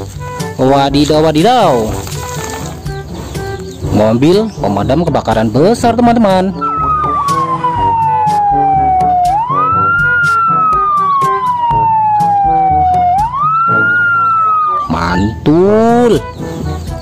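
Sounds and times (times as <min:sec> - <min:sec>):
background music: 0:00.0 - 0:17.0
fire engine siren wailing: 0:06.6 - 0:15.4.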